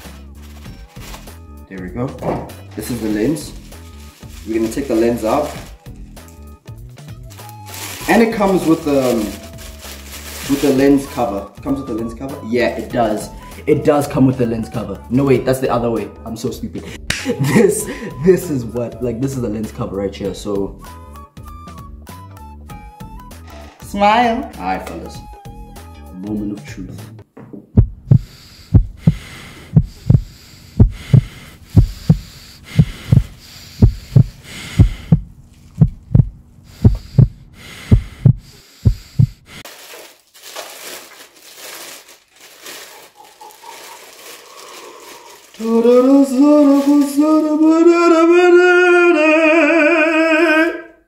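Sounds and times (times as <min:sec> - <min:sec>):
heartbeat thumps: 0:27.7 - 0:39.6.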